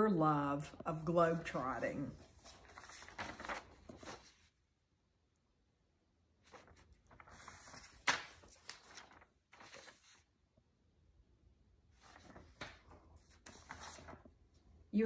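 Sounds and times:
rustling and handling noises: 0:02.0 - 0:04.6, 0:06.4 - 0:10.3, 0:11.9 - 0:14.6.

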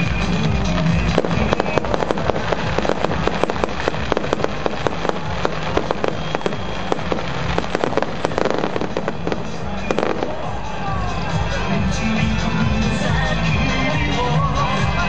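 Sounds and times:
fireworks popping and crackling: 0:00.0 - 0:11.6.

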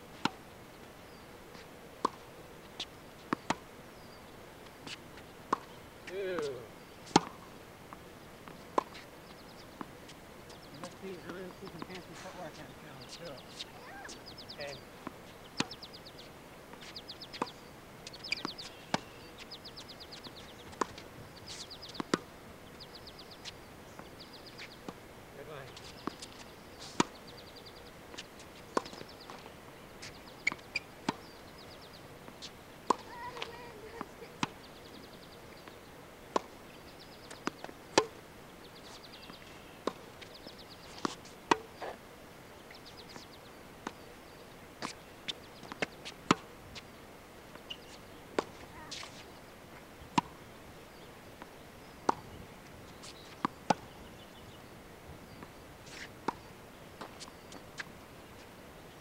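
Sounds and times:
tennis ball bouncing on hard court: 0:02.8 - 0:03.6, 0:04.8 - 0:05.8, 0:06.4 - 0:07.5, 0:08.4 - 0:09.0, 0:10.5 - 0:14.2, 0:20.5 - 0:22.2, 0:28.1 - 0:31.3, 0:32.4 - 0:34.6, 0:37.3 - 0:38.2, 0:40.9 - 0:42.0, 0:45.6 - 0:46.5, 0:47.6 - 0:49.2, 0:51.4 - 0:52.2, 0:53.0 - 0:53.9
tennis ball hit with racket: 0:06.4 - 0:07.5, 0:08.7 - 0:09.0, 0:32.4 - 0:34.6, 0:37.4 - 0:38.2, 0:40.9 - 0:42.0, 0:45.6 - 0:46.4, 0:47.9 - 0:49.2, 0:53.2 - 0:53.9.

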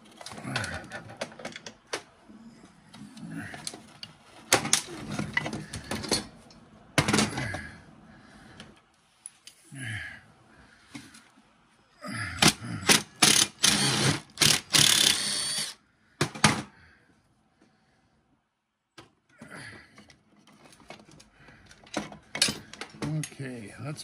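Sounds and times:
tools clicking and knocking: 0:00.0 - 0:02.1, 0:12.4 - 0:15.3
power driver rattling bursts: 0:12.9 - 0:15.8.

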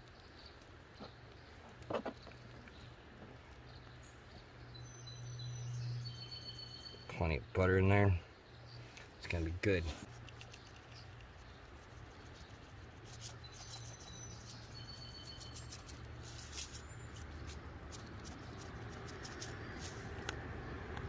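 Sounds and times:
short bird chirps: 0:04.8 - 0:07.2, 0:13.1 - 0:17.2.

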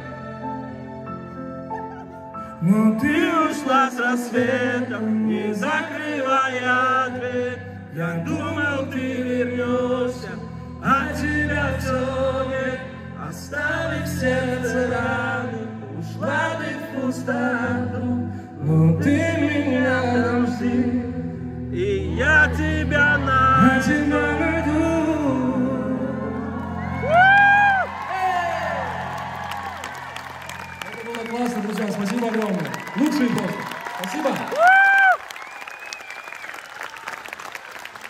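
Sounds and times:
man singing through loudspeakers: 0:02.6 - 0:26.6.

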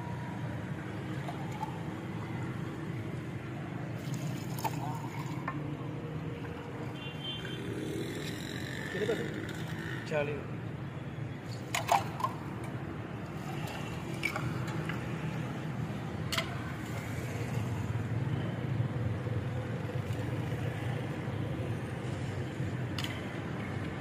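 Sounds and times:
street traffic hum: 0:00.0 - 0:24.0.

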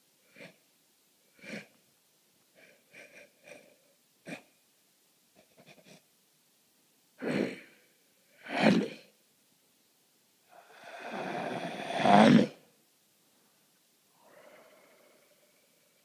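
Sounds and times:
breathy vocal noises: 0:10.5 - 0:12.6, 0:14.2 - 0:16.0.

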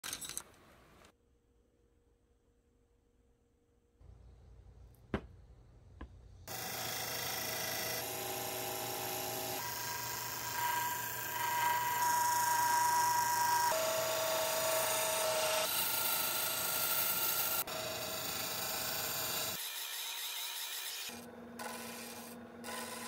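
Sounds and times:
wood lathe motor whine: 0:06.5 - 0:19.6
gouge cutting wood: 0:20.6 - 0:23.0.

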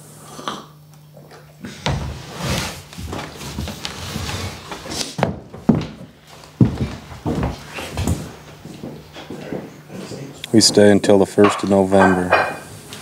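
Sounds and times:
plates clattering on a table: 0:11.4 - 0:12.8.

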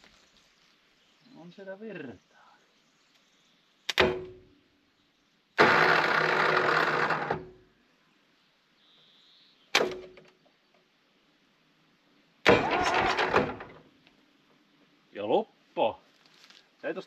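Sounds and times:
starter motor cranking engine: 0:05.6 - 0:07.5, 0:12.5 - 0:13.6
starter engaging clunk: 0:12.5 - 0:13.8.

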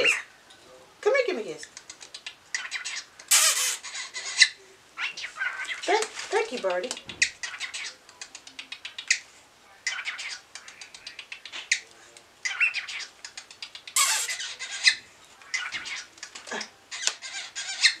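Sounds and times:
cockatiel chirping: 0:12.5 - 0:16.1, 0:16.9 - 0:18.0.

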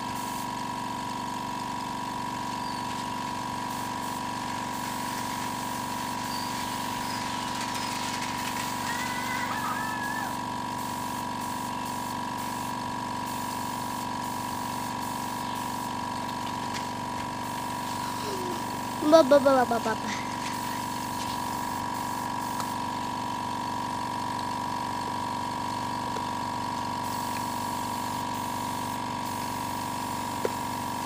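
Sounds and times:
spray gun air hissing: 0:00.0 - 0:00.6, 0:03.7 - 0:07.0, 0:10.8 - 0:16.0, 0:27.0 - 0:31.0
air compressor motor humming: 0:00.0 - 0:31.0.

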